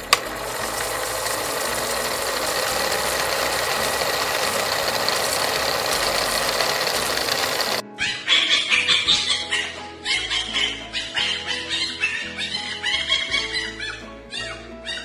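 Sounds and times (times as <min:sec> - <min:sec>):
fast mechanical rattling: 0:00.0 - 0:07.8.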